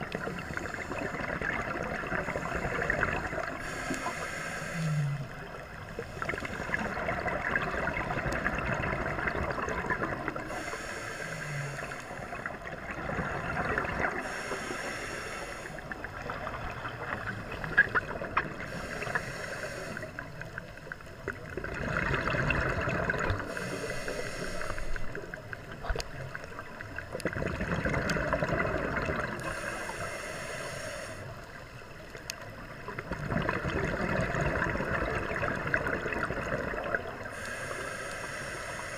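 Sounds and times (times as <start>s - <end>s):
gurgling exhaled bubbles: 0.0s - 3.8s, 4.8s - 10.7s, 11.4s - 14.4s, 15.7s - 19.2s, 19.9s - 23.8s, 24.7s - 29.6s, 32.5s - 37.7s
regulator hiss on inhale: 0.0s - 6.9s, 10.2s - 12.7s, 14.0s - 16.8s, 18.4s - 21.0s, 23.3s - 26.6s, 29.3s - 32.2s, 37.0s - 38.9s.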